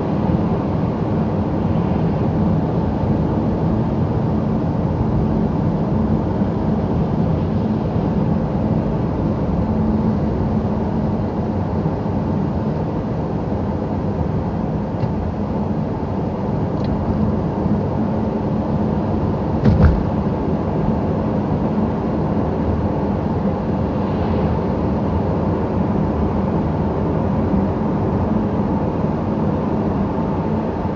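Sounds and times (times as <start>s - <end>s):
road noise rumble: 0.0s - 28.2s
low engine hum: 0.0s - 30.9s
short thump: 19.6s - 20.2s.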